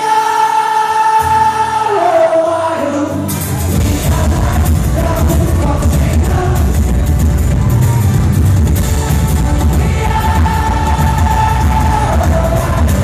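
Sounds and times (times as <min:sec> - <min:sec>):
live rock band: 0:00.0 - 0:13.0
heavy bass: 0:03.2 - 0:13.0
hard-hit drums: 0:03.6 - 0:13.0.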